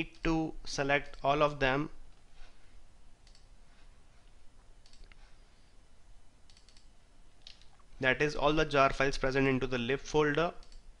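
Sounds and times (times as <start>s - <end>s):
low room hiss: 0.0s - 11.0s
faint computer mouse clicks: 3.2s - 3.5s, 4.8s - 5.2s, 6.5s - 7.7s.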